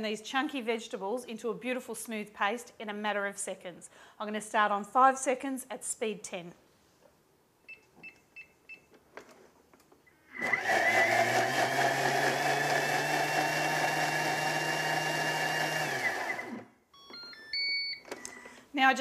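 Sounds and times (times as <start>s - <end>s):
food processor motor whining: 10.3s - 16.7s
short machine beeps: 17.0s - 18.1s.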